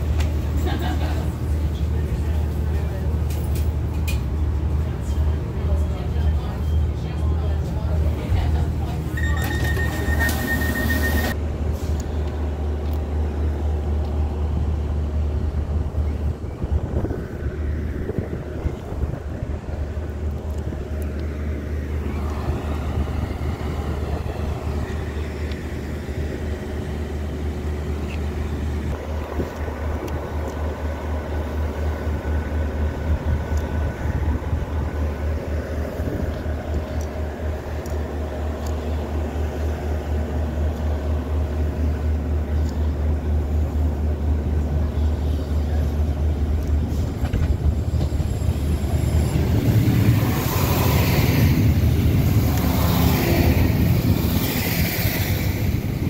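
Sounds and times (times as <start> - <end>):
diesel railcar engine idling: 0.0 - 56.0
short high beep: 9.2 - 11.4.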